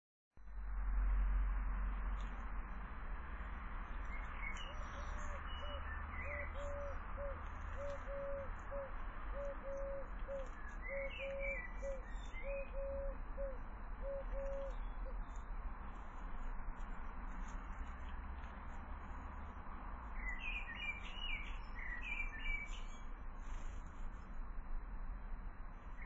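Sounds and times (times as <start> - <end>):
small birds chirping: 3.8 - 24.3
dove cooing: 5.0 - 14.8.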